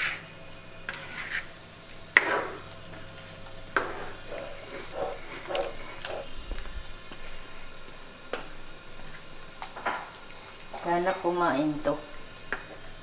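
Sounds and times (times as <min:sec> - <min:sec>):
spatula scraping pan: 0:00.0 - 0:02.7, 0:03.7 - 0:06.6.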